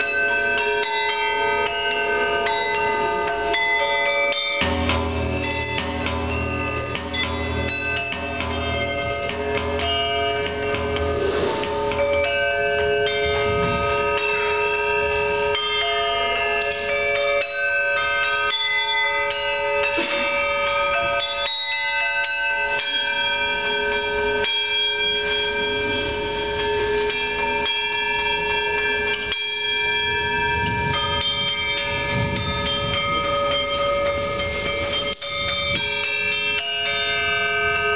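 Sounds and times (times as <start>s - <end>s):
small gongs struck with mallets: 4.6s - 14.7s.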